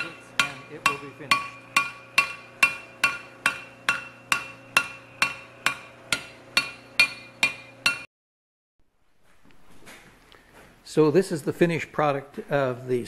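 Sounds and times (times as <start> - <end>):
hammer striking hot steel: 0.0 - 8.1.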